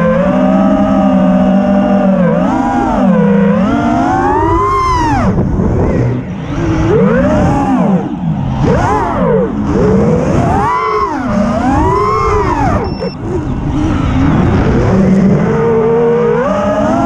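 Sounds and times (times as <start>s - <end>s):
drone motors whining: 0.0s - 17.0s
wind buffeting microphone: 4.4s - 15.2s.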